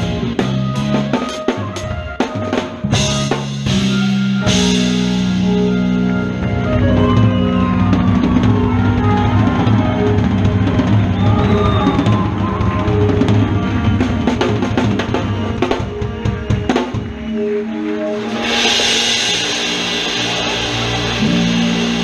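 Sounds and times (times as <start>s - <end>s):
bass notes: 0.0s - 22.0s
drum kit groove: 0.0s - 22.0s
lead guitar bending notes: 0.0s - 22.0s
cymbal crashes: 18.2s - 22.0s.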